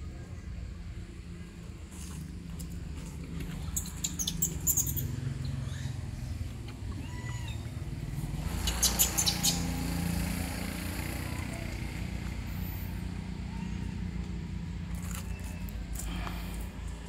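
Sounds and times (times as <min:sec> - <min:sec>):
high-pitched squeaky chirps: 0:03.7 - 0:05.9, 0:08.6 - 0:09.8.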